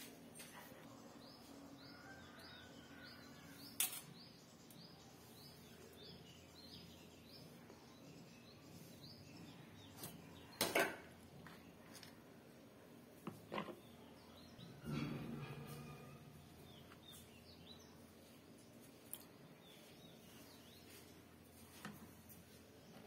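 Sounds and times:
bird chirping: 13.8 - 21.2.

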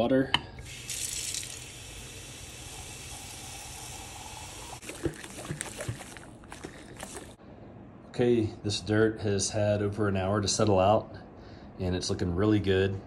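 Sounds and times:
faucet water running into jar: 0.6 - 7.4.

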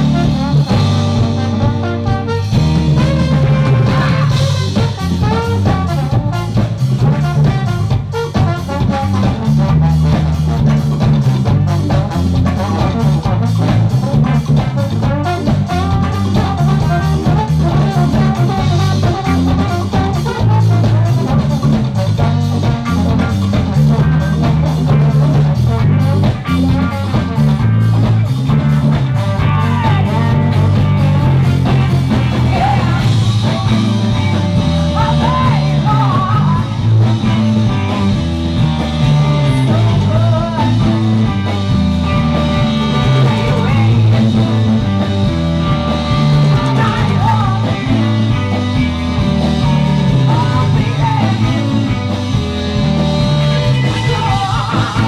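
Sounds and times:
drums: 0.0 - 55.0
electric guitar: 0.0 - 55.0
person singing: 29.3 - 37.0, 39.2 - 41.5, 43.0 - 44.4, 46.4 - 48.4, 50.0 - 52.1, 53.4 - 55.0.

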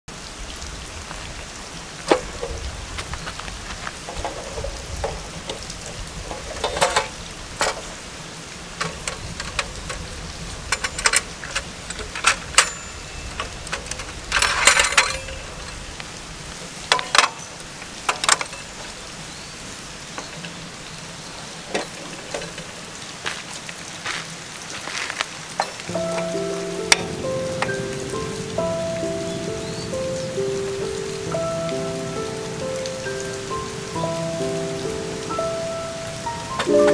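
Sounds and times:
steady rain-like hiss: 0.1 - 36.9
metal camping stove clicks and rattles: 6.3 - 7.9, 8.8 - 10.0, 10.7 - 15.5.

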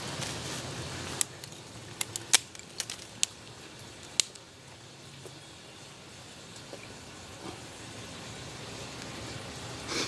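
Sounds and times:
wood fire popping and crackling: 0.0 - 5.4
fire hissing: 5.8 - 10.0.

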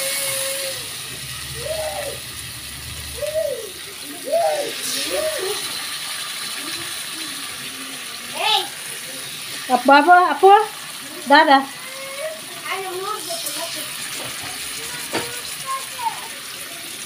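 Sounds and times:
small child calling: 0.0 - 2.3, 3.2 - 5.8, 11.7 - 13.7, 14.6 - 17.0
fish sizzling in oil: 0.0 - 17.0.

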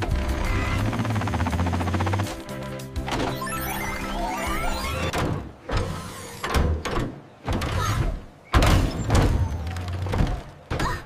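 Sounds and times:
heavy cartoon thuds and clunks: 5.1 - 11.0.

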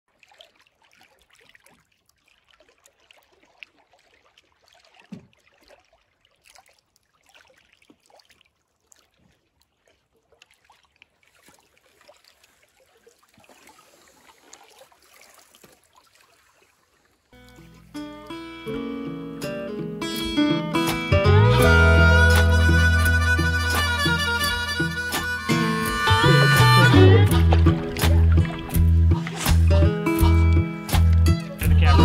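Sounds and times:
small waves lapping on hull: 0.1 - 18.1, 27.2 - 30.0
water splashes and drips: 0.1 - 18.4, 24.6 - 32.0.

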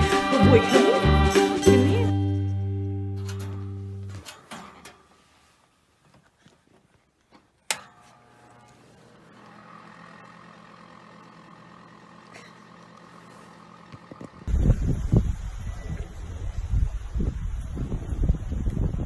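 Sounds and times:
heater humming: 7.7 - 16.2
wind noise on microphone: 14.4 - 19.0.

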